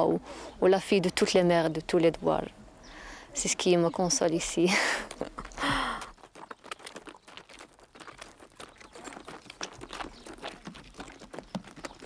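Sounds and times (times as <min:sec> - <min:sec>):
footsteps on stony track: 0:04.2 - 0:12.0
hooves on stony track: 0:04.2 - 0:12.0.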